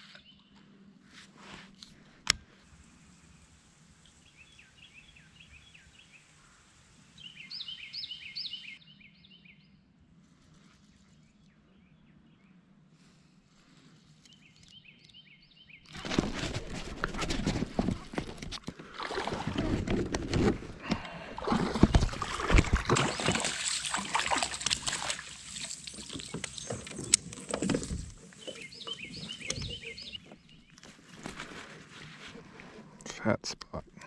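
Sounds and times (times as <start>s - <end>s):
knocks and rustling of handling: 15.9s - 18.8s, 19.4s - 32.4s
water splashing and sloshing: 15.9s - 32.7s
high bird chirps: 28.3s - 30.8s.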